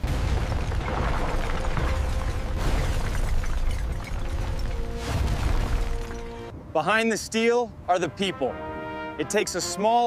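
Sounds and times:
rock crashing and tumbling: 0:00.0 - 0:06.5
background music: 0:04.1 - 0:06.6, 0:07.9 - 0:10.0.

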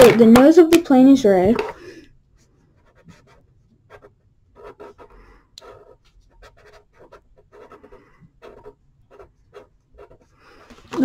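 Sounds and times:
scribbling on paper: 0:02.7 - 0:10.6.

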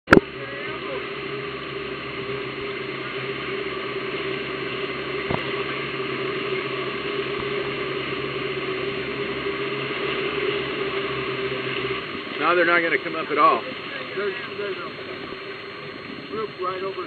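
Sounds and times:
boat engine hum: 0:00.1 - 0:17.0
water rushing along hull: 0:00.1 - 0:17.0.

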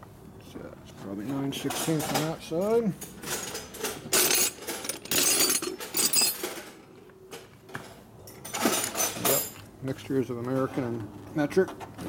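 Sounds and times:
metal wrenches clattering: 0:01.6 - 0:06.9, 0:08.3 - 0:09.6.

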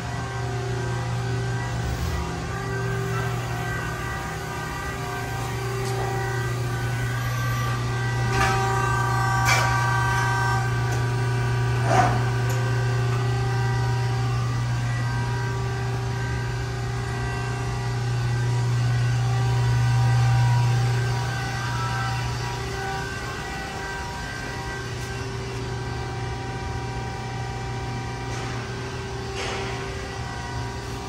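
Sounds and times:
hydraulic pump motor humming: 0:00.0 - 0:31.0.

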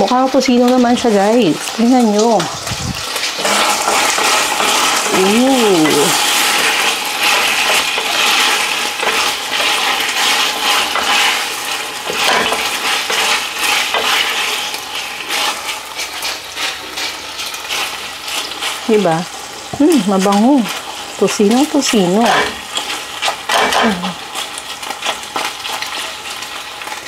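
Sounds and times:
meat sizzling in oil: 0:00.0 - 0:27.0
wooden spatula scraping pot: 0:03.2 - 0:18.8, 0:21.8 - 0:26.0.

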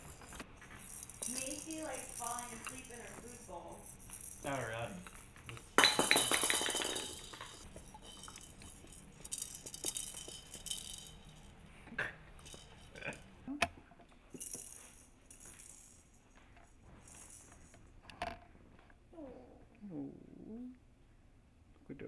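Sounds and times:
plastic maracas rattling: 0:00.0 - 0:11.7, 0:12.4 - 0:13.2, 0:14.3 - 0:16.2, 0:17.0 - 0:17.8.

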